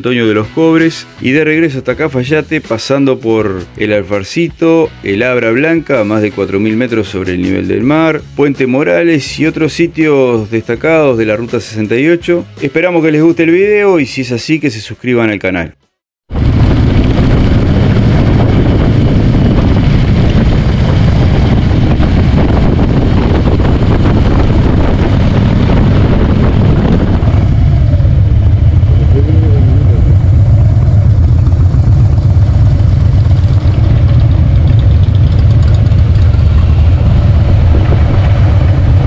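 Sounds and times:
motorcycle engine rumble: 0:16.3 - 0:39.0
wind on microphone: 0:16.3 - 0:39.0.

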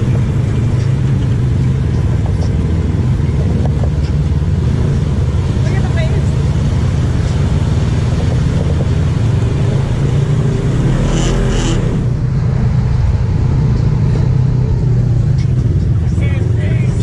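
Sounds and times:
atv engine idling: 0:00.0 - 0:10.6
engine revving: 0:00.0 - 0:17.0.

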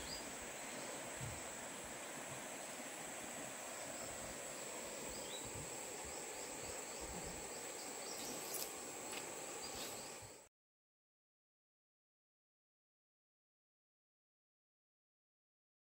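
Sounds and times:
faint bird chirps: 0:00.0 - 0:01.4, 0:05.0 - 0:08.7
insects droning: 0:00.0 - 0:10.5.

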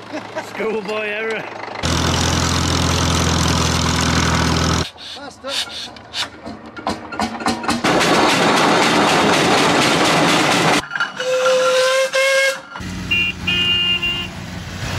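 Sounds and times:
steam whistle blasts: 0:11.2 - 0:14.3.

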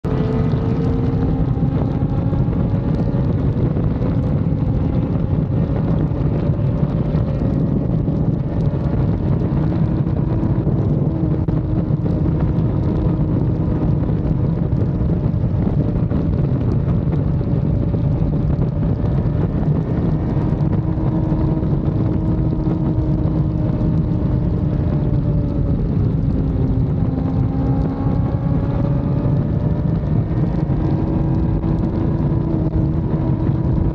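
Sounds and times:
motorcycle engine at high speed: 0:00.0 - 0:33.9
wind rumble on microphone: 0:00.0 - 0:33.9.

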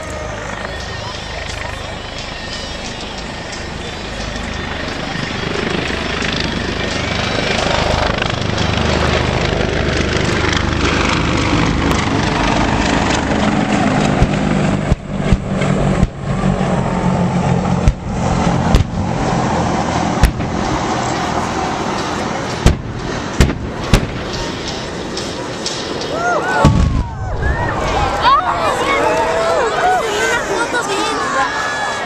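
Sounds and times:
helicopters flying low: 0:00.0 - 0:32.0
pyrotechnic explosions: 0:08.2 - 0:29.4.

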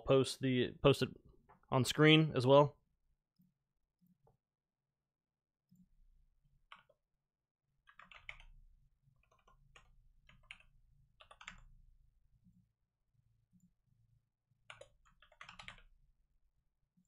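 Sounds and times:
typing on keyboard: 0:07.9 - 0:08.5, 0:09.2 - 0:11.7, 0:14.7 - 0:15.9.

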